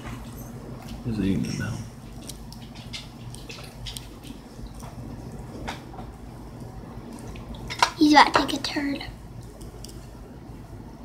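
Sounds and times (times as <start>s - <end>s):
low steady hum: 0.0s - 11.0s
faint clicks and ticks: 9.4s - 10.1s.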